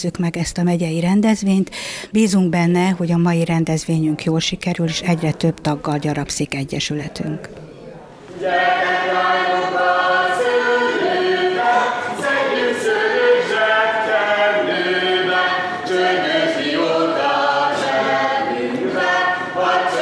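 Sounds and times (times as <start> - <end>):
group singing without instruments: 8.3 - 20.0.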